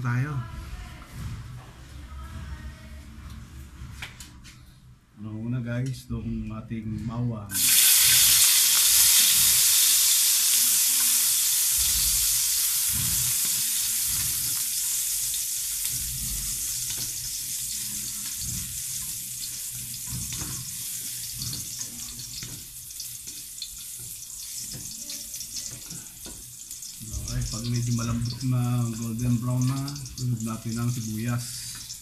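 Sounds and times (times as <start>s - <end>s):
garlic sizzling in hot oil: 7.5s - 32.0s
spatula scraping wok: 10.6s - 32.0s.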